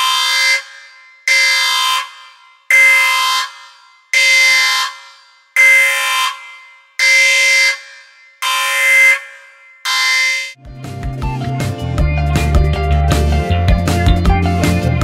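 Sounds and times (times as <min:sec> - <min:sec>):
alarm horn blasts: 0:00.0 - 0:10.6.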